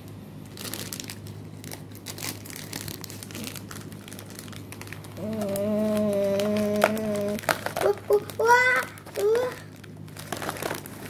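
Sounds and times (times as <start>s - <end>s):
foil packaging crinkling: 0.4s - 11.0s.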